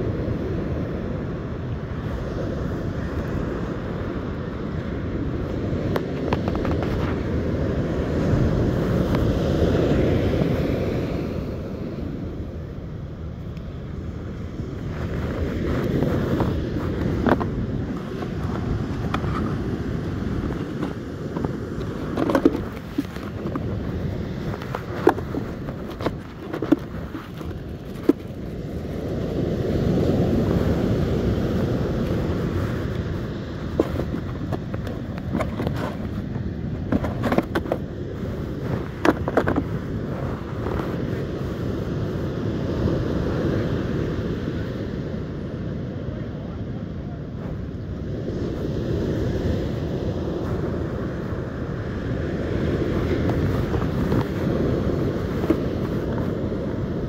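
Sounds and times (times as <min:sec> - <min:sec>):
breaking surf: 0:00.0 - 0:45.4, 0:47.4 - 0:57.0
wind buffeting microphone: 0:00.0 - 0:57.0
clicks and rustles of handling: 0:05.9 - 0:07.2, 0:15.0 - 0:28.6, 0:32.0 - 0:41.2, 0:53.0 - 0:56.5
surf breaking: 0:14.8 - 0:41.2.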